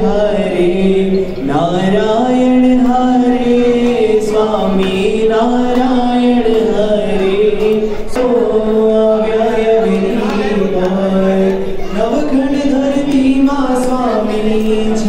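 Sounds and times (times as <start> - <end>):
voices singing a hymn in unison: 0.0 - 15.0.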